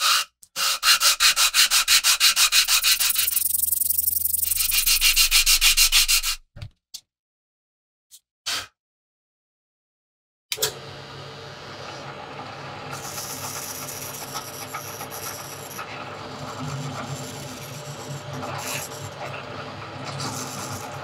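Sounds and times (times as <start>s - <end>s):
drill press motor hum: 10.5s - 21.0s
drill bit boring through wood: 13.0s - 19.5s.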